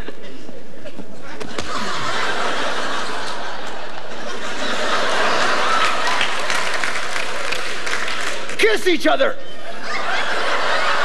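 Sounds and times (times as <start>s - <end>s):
studio audience laughing: 1.3s - 8.0s, 9.6s - 11.0s.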